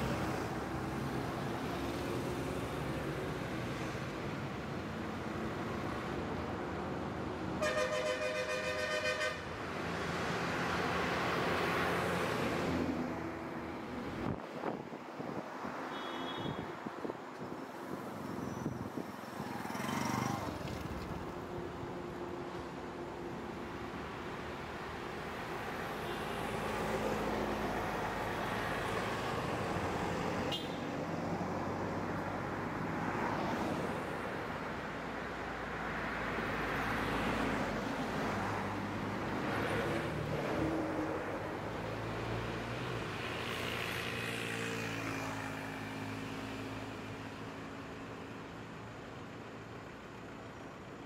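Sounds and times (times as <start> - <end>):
car and van engines passing: 0.0 - 7.6, 9.4 - 15.9, 16.8 - 51.0.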